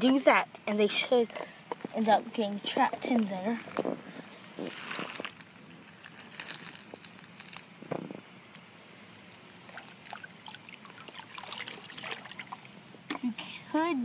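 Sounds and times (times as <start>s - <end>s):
water sloshing and splashing: 9.6s - 12.8s.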